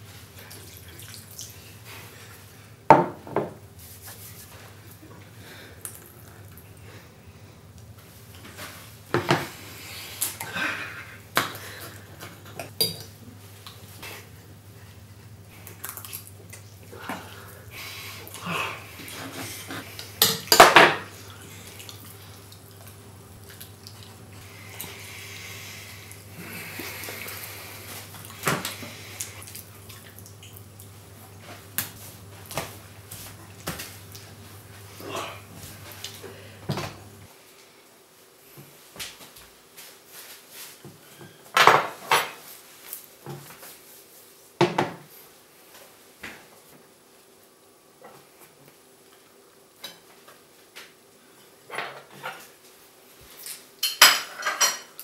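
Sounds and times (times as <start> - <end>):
cutlery clinking on a plate: 53.8 - 55.0.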